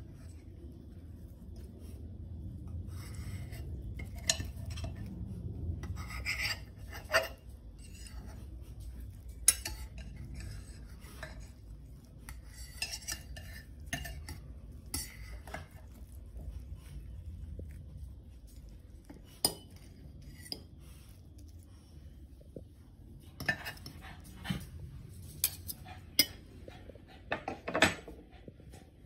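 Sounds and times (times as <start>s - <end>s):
cutlery scraping and clicking on dish: 3.3s - 5.0s, 5.8s - 8.3s, 9.2s - 11.6s, 12.2s - 15.9s, 19.1s - 20.8s, 23.4s - 24.7s, 25.3s - 26.4s, 27.3s - 28.2s.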